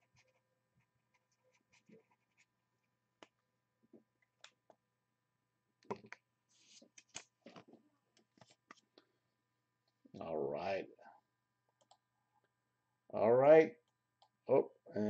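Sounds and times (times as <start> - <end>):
pen scratching on paper: 1.2 - 2.5.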